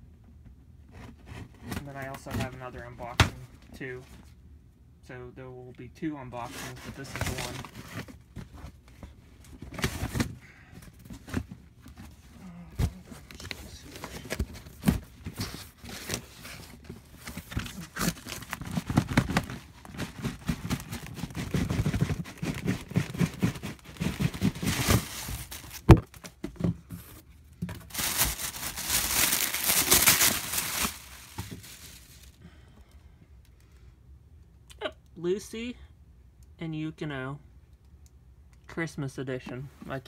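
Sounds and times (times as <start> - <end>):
cardboard and plastic rustling: 0.9 - 4.3, 6.3 - 32.4
tearing and crinkling: 15.4 - 26.2, 27.8 - 32.4.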